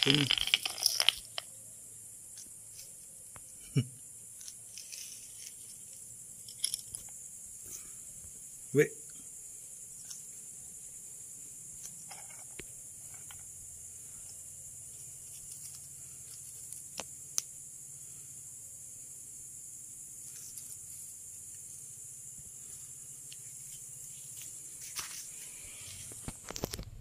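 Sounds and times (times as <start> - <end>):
night insects chorus: 0.0 - 26.9.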